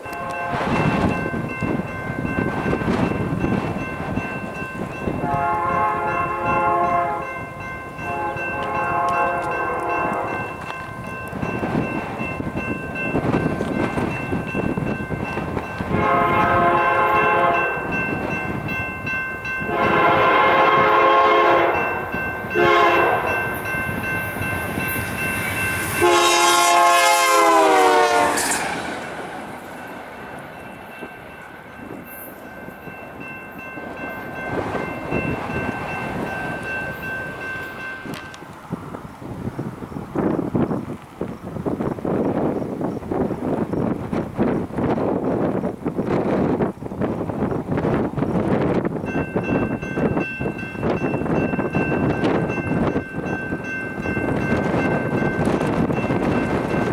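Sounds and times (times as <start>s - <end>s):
locomotive air horn blasts: 0.0s - 1.0s, 5.2s - 7.3s, 8.0s - 10.5s, 15.9s - 17.8s, 19.7s - 23.4s, 25.8s - 28.7s
wind noise: 0.0s - 56.9s.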